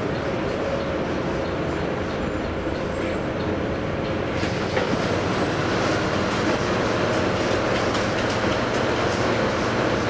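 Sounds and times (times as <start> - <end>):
bus diesel engine drone: 0.0 - 10.0.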